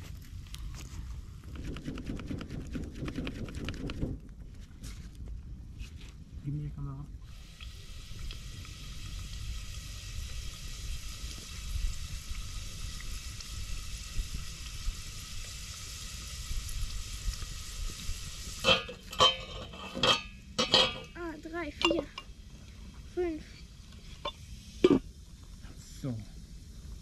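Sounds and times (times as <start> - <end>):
food sizzling in metal pot: 7.3 - 25.4
metal pot clinking: 18.6 - 21.2, 21.8 - 22.3.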